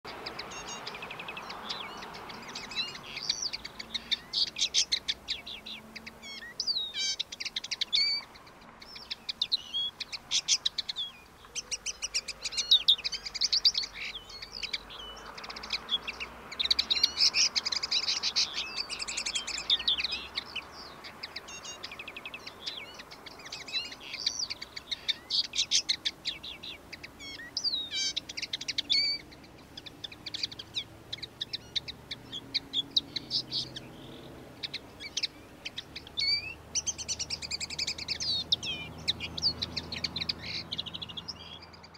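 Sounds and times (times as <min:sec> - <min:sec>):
linnet singing: 0:00.1 - 0:41.9.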